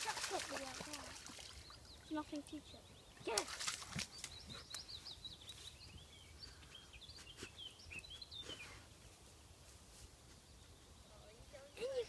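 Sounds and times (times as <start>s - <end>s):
rustling in long grass: 8.4s - 10.6s.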